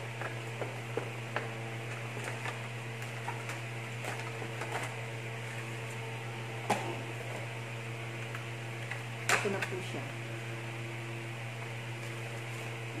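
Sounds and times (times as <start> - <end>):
low electrical hum: 0.0 - 13.0
cardboard and plastic crinkling: 1.0 - 6.1.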